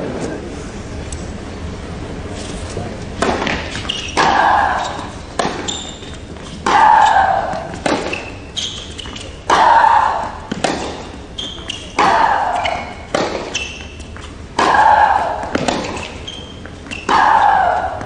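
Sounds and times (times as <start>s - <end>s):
racket striking tennis ball: 3.2s - 16.3s
shoes squeaking on court: 3.4s - 9.5s, 10.8s - 14.4s, 15.6s - 17.5s.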